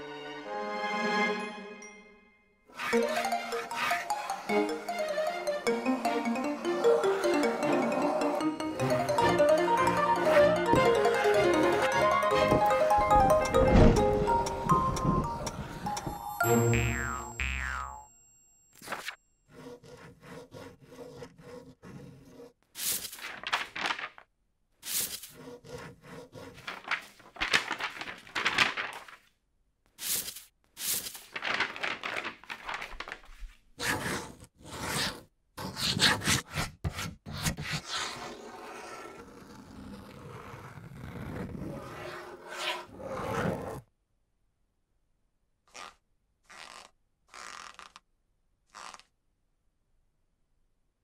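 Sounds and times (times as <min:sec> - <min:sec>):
pen scratching on paper: 0:02.7 - 0:04.5, 0:18.9 - 0:23.2, 0:24.8 - 0:27.2, 0:33.8 - 0:43.8, 0:48.7 - 0:49.1.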